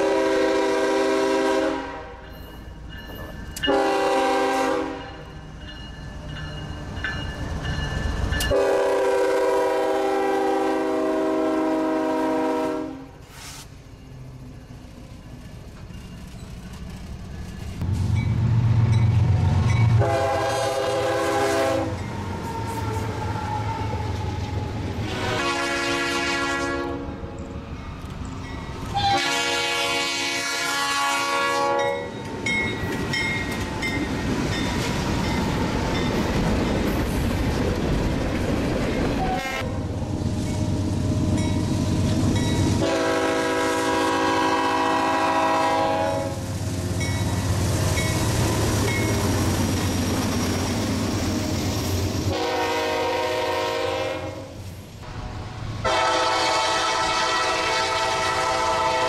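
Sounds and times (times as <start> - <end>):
locomotive air horn blasts: 0.0 - 2.2, 3.6 - 5.2, 8.5 - 13.5, 19.9 - 24.4, 25.0 - 27.1, 28.9 - 32.2, 39.2 - 39.8, 42.8 - 46.4, 52.3 - 54.6, 55.8 - 59.0.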